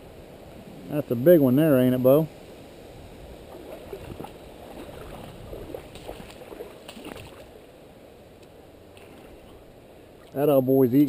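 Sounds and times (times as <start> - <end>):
stick sloshing pond water: 3.4 - 7.6, 8.9 - 9.6.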